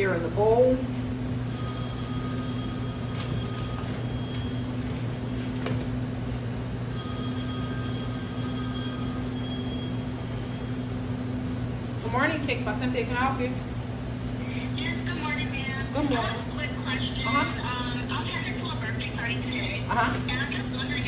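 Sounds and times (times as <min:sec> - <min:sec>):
phone ringing: 0:01.4 - 0:06.0, 0:06.9 - 0:11.2.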